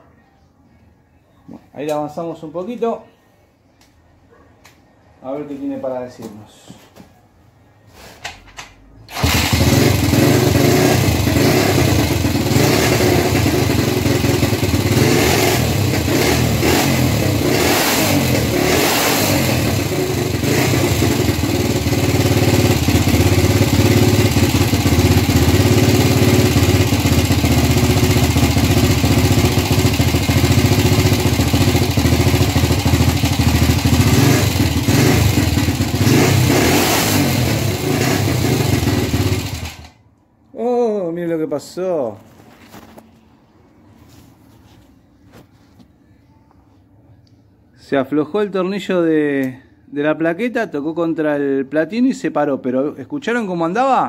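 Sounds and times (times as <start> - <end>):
motorcycle engine running loud: 9.1 - 39.9.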